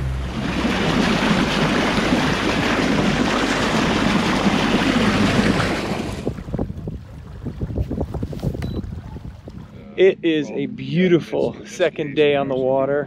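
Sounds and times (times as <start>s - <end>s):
water splashing against boat hull: 0.0s - 9.8s.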